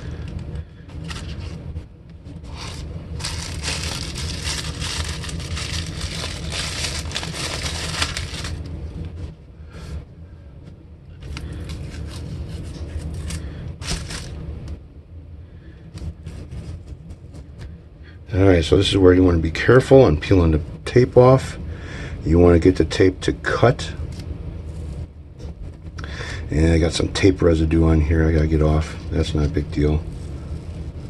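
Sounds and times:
steady low hum: 0.0 - 31.0
tape peeling and plastic crinkling: 0.9 - 1.6, 2.4 - 8.7, 11.2 - 14.4.

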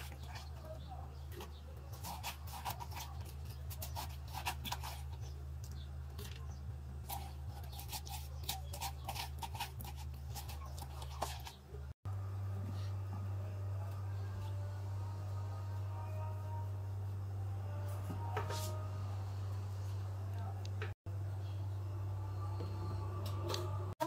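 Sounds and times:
spoon scraping watermelon: 0.0 - 11.8
steady low hum: 11.7 - 24.0.

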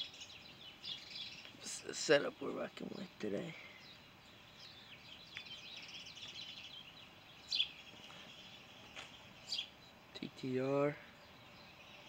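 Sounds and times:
outdoor background hiss: 0.0 - 12.0
songbirds chirping and warbling: 0.0 - 12.0.

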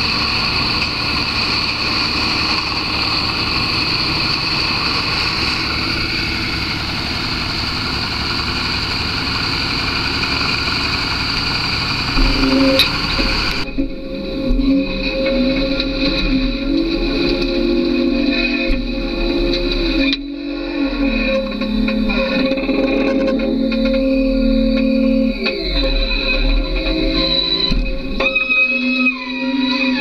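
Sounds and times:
wood grinder chipping logs: 0.0 - 30.0.

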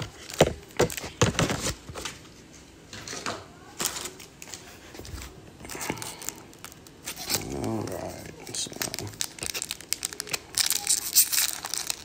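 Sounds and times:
foil pack crinkling: 5.7 - 12.0.

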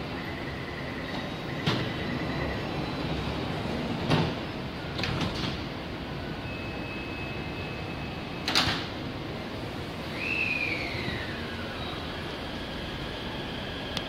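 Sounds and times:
steady high warning tone: 0.0 - 5.2, 5.8 - 8.7, 10.0 - 14.0
train doors shutting with thuds: 1.0 - 6.0, 8.4 - 9.1.

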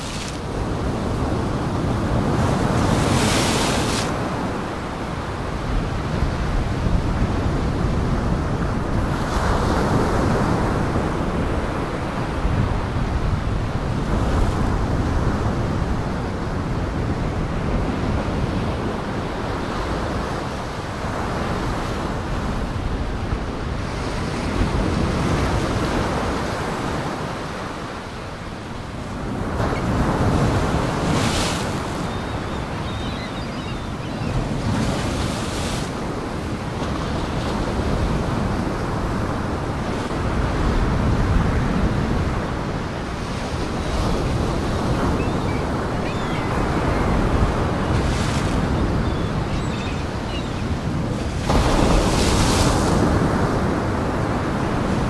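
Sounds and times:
wind: 0.0 - 55.0
storm waves breaking: 28.9 - 55.0.

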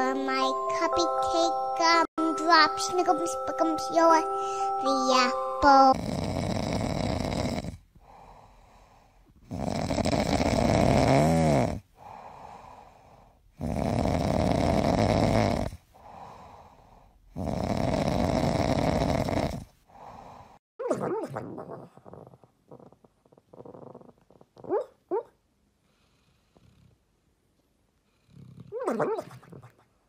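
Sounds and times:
dog snoring: 5.9 - 12.9, 13.6 - 16.6, 17.3 - 20.6, 21.2 - 24.9, 25.9 - 27.0, 28.1 - 29.7.

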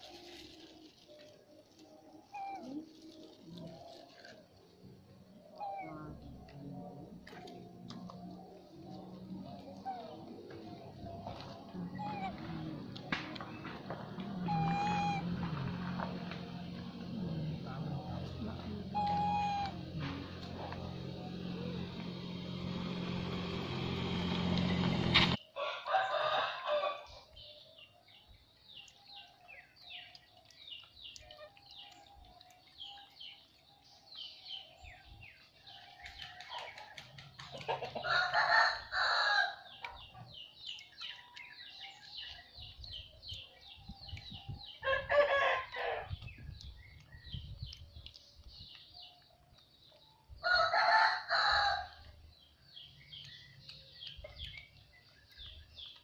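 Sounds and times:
rooster crowing: 25.6 - 27.0, 38.0 - 39.6, 44.8 - 46.1, 50.4 - 52.0
small birds chirping: 26.8 - 56.0.

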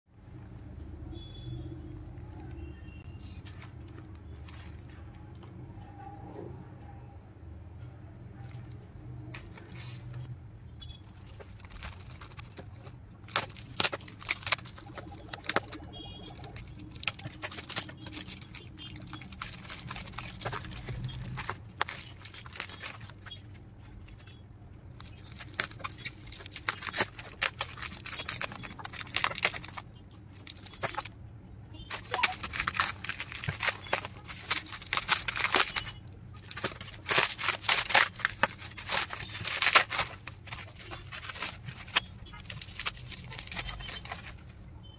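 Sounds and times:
plastic wrapping crinkling: 8.4 - 44.9.

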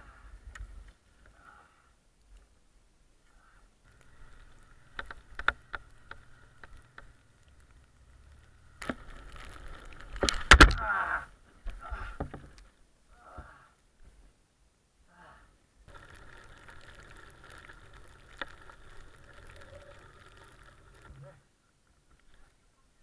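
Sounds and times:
wind: 0.0 - 23.0
scattered clicks: 3.9 - 10.8, 15.9 - 21.3.

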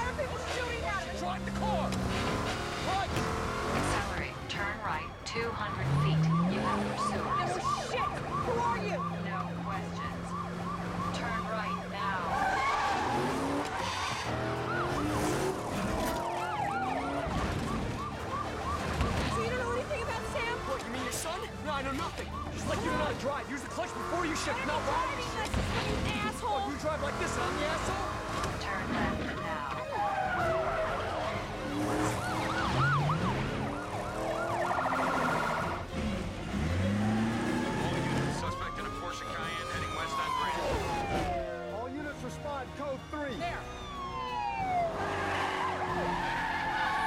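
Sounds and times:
car engine running: 0.0 - 41.0
police sirens yelping: 0.0 - 47.0
siren tone sliding down: 5.7 - 19.7, 43.8 - 47.0.

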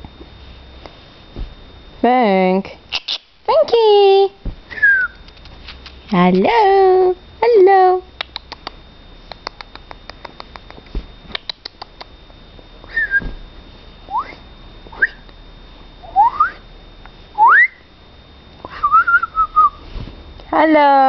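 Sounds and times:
person whistling: 4.7 - 5.2, 12.9 - 13.3, 14.1 - 14.4, 15.0 - 15.2, 16.2 - 16.6, 17.4 - 17.8, 18.7 - 19.8.

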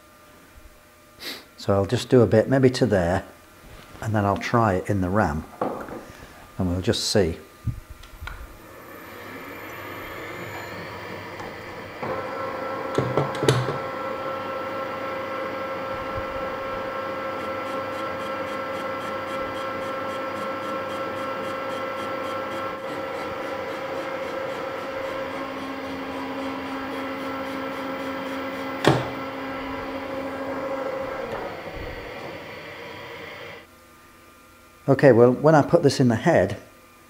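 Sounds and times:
metal lathe humming: 8.6 - 33.7.

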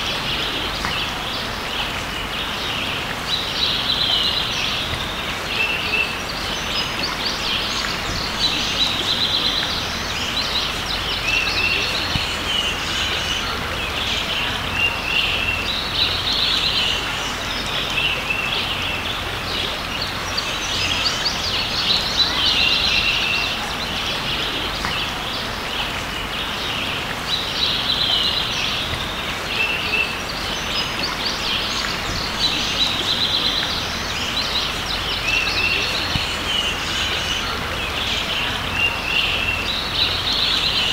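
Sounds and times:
creek rushing: 0.0 - 40.9
songbirds chirping: 0.0 - 40.9.

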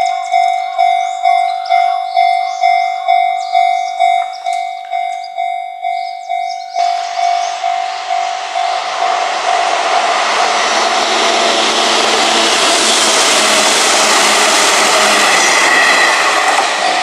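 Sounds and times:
level crossing bell ringing: 0.0 - 8.8
electric train running: 0.0 - 17.0.

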